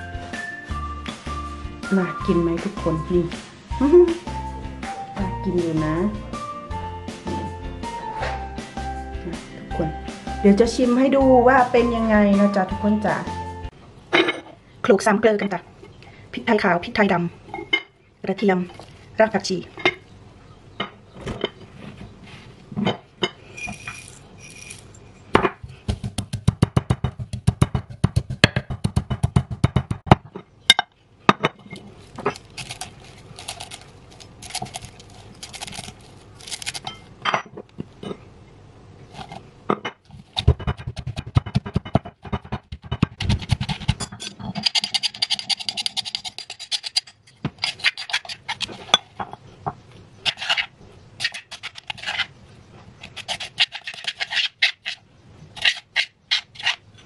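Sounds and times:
stone pestle pounding in mortar: 0:25.5 - 0:30.3, 0:40.4 - 0:47.0.

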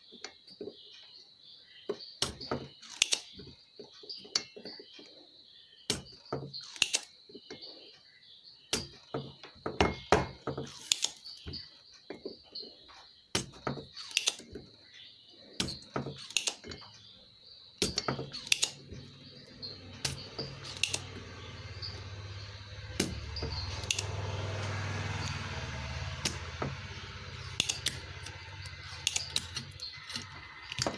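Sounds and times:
desoldering pump clicking: 0:15.6 - 0:16.8, 0:17.8 - 0:19.2, 0:20.0 - 0:22.1, 0:23.0 - 0:25.4, 0:26.2 - 0:30.9.

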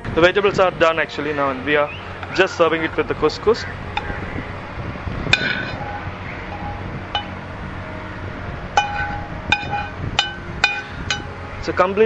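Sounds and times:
low background hum: 0:00.0 - 0:12.0
metal utensil clinking on frying pan: 0:08.8 - 0:11.3.

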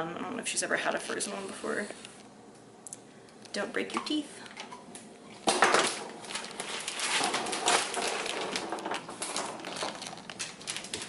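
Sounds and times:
dog crunching on bone: 0:05.9 - 0:11.0.

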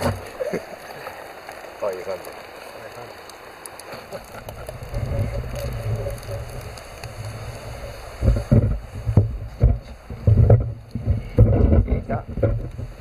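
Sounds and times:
wind buffeting microphone: 0:04.2 - 0:13.0.

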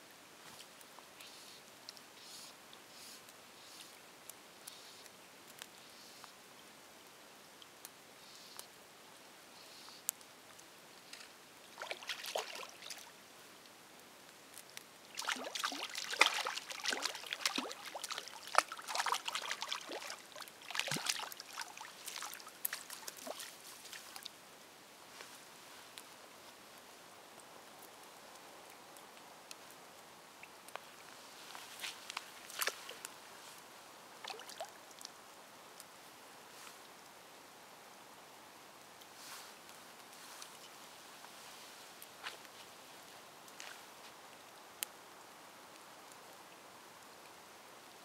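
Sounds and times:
fish splashing at surface: 0:15.2 - 0:23.5.

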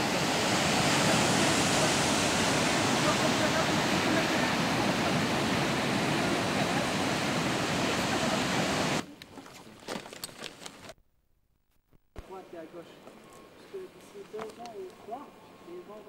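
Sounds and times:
ocean surf breaking: 0:00.0 - 0:09.0.

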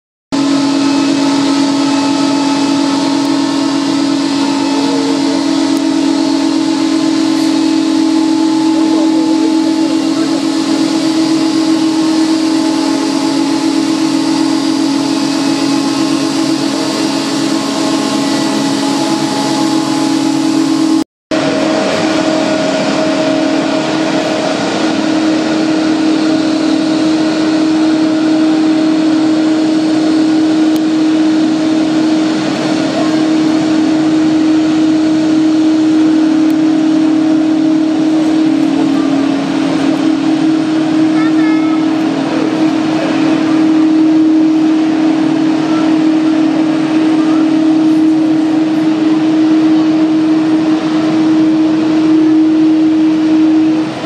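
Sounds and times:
jet engines whining: 0:00.4 - 0:54.0.

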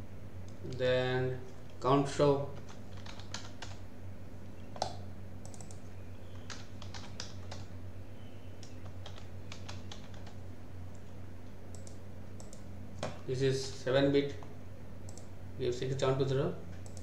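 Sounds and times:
steady low hum: 0:00.0 - 0:17.0
keyboard typing clicks: 0:02.6 - 0:03.8, 0:04.8 - 0:07.7, 0:08.6 - 0:11.0, 0:11.7 - 0:13.2, 0:15.1 - 0:15.3.

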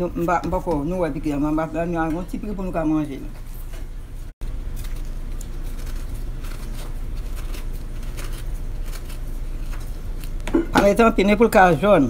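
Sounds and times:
knife peeling orange: 0:04.5 - 0:10.6.

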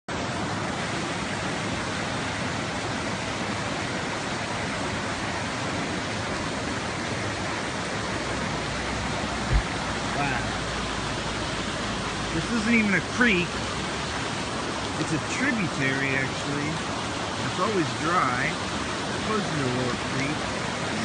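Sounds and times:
floodwater rushing over road: 0:00.1 - 0:21.0
low thump: 0:09.4 - 0:10.0.

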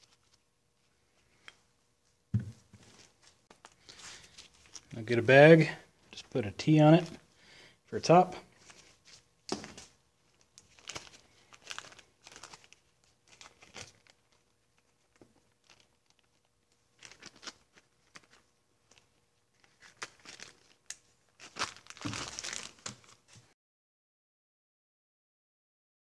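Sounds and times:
plastic bag crinkling: 0:02.8 - 0:05.0, 0:08.5 - 0:23.4.

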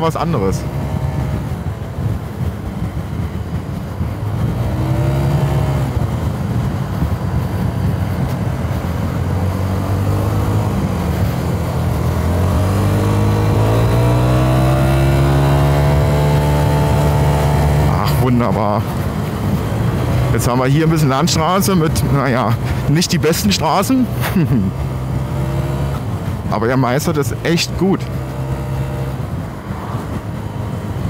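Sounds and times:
scooter engine running: 0:00.6 - 0:20.5.

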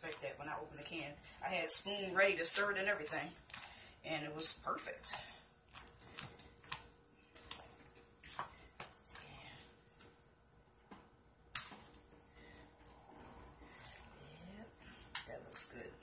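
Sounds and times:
spatula scraping soap paste: 0:00.0 - 0:10.3.

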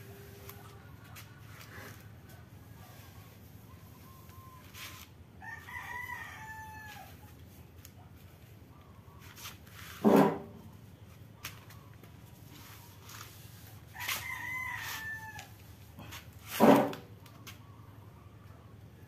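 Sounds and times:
rooster crowing: 0:05.4 - 0:07.3, 0:13.9 - 0:15.6
loud short sounds: 0:16.4 - 0:17.1.

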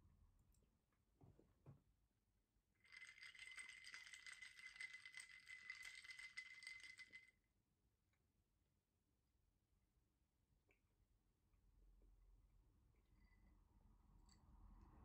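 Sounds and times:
ice cubes clinking in a glass: 0:02.8 - 0:07.3.

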